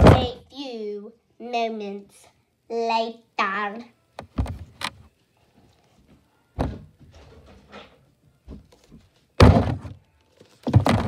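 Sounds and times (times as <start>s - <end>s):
dull thumps and knocks: 4.2s - 4.9s, 6.6s - 7.2s, 8.5s - 10.0s, 10.6s - 11.0s.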